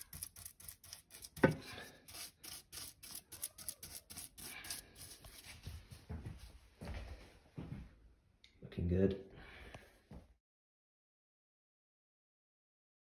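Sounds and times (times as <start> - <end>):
paintbrush scratching on metal: 0.0 - 5.6.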